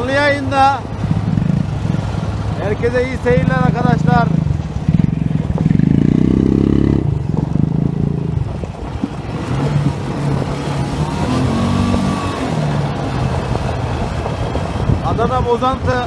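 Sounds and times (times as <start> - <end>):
quad engine revving: 3.3 - 8.5, 9.3 - 13.9.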